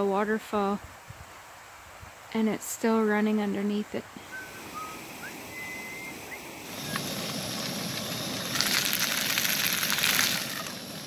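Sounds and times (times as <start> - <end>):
food sizzling in a pan: 4.3 - 11.0.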